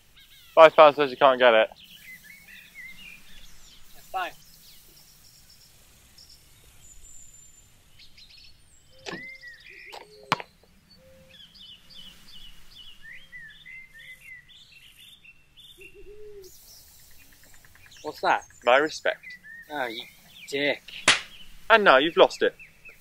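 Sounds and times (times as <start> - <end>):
small birds chirping: 0.0 - 23.0
low bird call: 6.9 - 21.8
sharp knock: 21.0 - 21.3.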